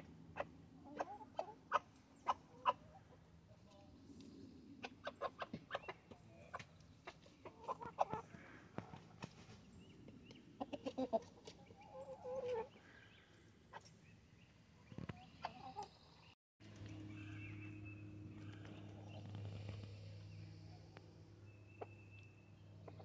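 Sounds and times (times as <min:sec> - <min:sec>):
chickens clucking: 0:00.0 - 0:03.9, 0:04.8 - 0:12.8, 0:13.7 - 0:14.0, 0:14.8 - 0:16.0
steady low hum: 0:16.6 - 0:23.0.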